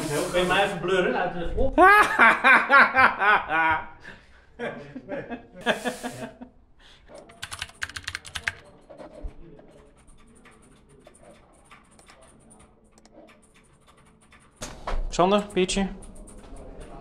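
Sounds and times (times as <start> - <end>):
sharp clicks and ticks: 7.2 - 8.6, 9.6 - 17.0.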